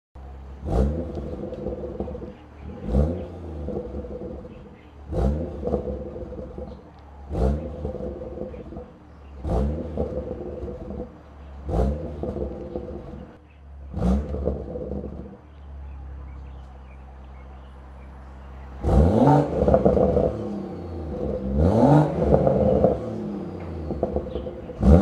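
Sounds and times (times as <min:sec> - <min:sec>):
car engine revving from idle: 0:00.2 - 0:15.6, 0:16.2 - 0:25.0
engine idle burble: 0:00.2 - 0:25.0
exhaust crack: 0:00.2 - 0:25.0.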